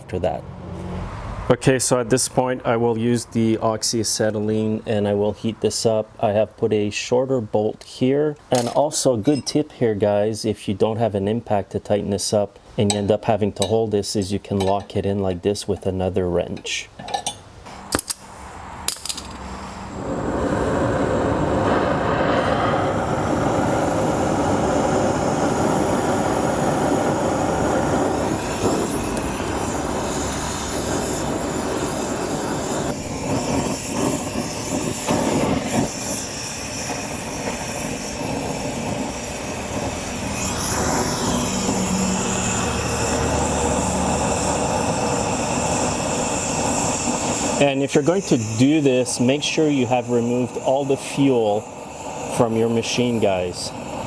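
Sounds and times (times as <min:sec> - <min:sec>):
metal tools clinking: 0:17.0 - 0:18.2
torch flame hissing: 0:17.8 - 0:54.0.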